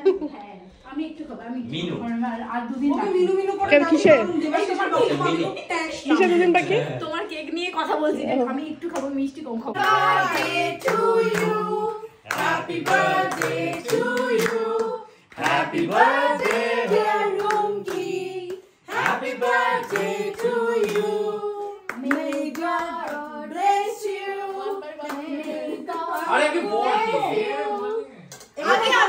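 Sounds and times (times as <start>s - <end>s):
people clapping in time: 9.8s - 11.6s, 12.3s - 20.2s, 21.9s - 23.2s
women singing together: 9.8s - 29.0s.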